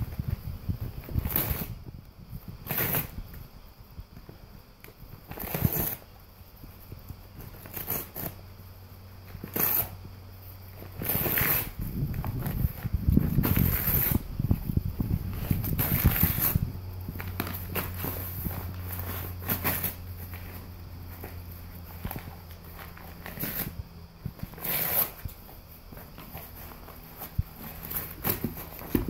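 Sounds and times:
paper bag ripping: 0:11.0 - 0:11.8, 0:12.5 - 0:14.3, 0:15.4 - 0:16.6, 0:24.5 - 0:25.2.

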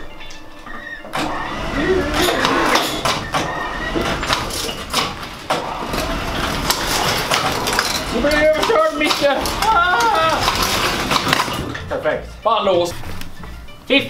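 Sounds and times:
metal clanks and creaks: 0:00.0 - 0:13.5
electric chain hoist running: 0:01.1 - 0:11.7.

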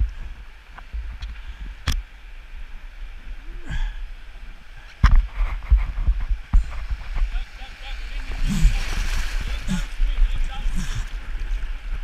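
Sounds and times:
water splashing against plastic hull: 0:05.0 - 0:12.0
sharp splashes or knocks: 0:08.1 - 0:10.0.

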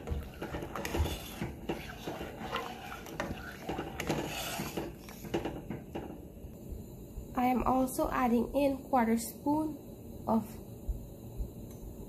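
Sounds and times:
spoon scraping a metal pot: 0:00.0 - 0:05.3
boiling peas: 0:00.0 - 0:06.6.

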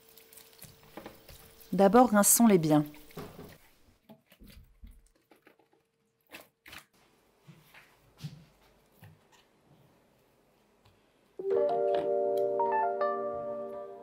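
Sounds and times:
vegetables and colander handled: 0:00.0 - 0:09.6.

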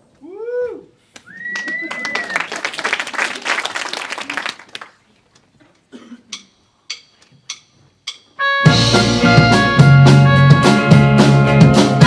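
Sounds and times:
audience clapping: 0:01.1 - 0:05.5
drumstick clicks counting in: 0:06.3 - 0:08.4
rock band playing: 0:08.3 - 0:12.0.

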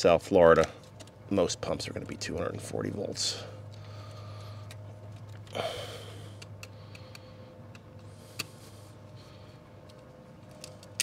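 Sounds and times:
steady low hum: 0:00.0 - 0:11.0
wires clicking and rustling: 0:03.7 - 0:05.6, 0:09.8 - 0:11.0.

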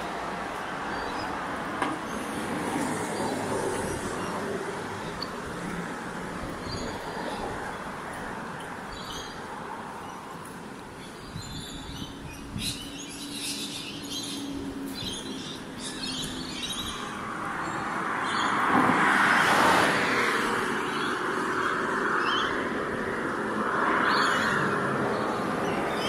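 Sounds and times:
birds chirping: 0:00.0 - 0:18.7.

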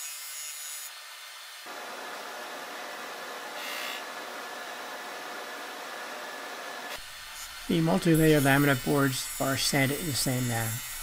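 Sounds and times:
drum sander running: 0:01.7 - 0:07.0.

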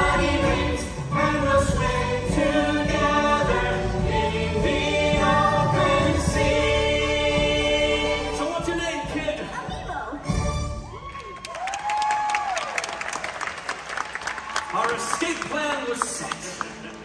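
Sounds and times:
chorus singing held notes: 0:00.0 - 0:08.6
backing music with strong bass: 0:00.0 - 0:10.8.

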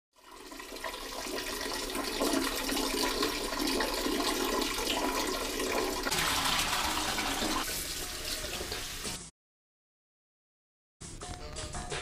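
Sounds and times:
toilet flushing: 0:00.2 - 0:09.3.

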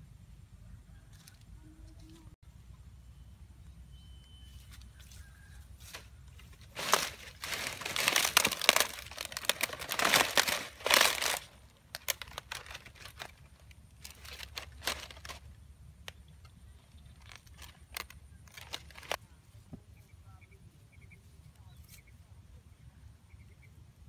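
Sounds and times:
dry palm fronds crackling: 0:05.2 - 0:19.2.

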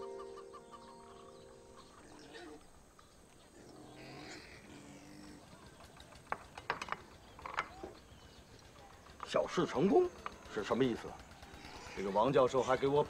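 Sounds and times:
background music chord: 0:00.0 - 0:02.6
faint outdoor background sound: 0:00.0 - 0:13.0.

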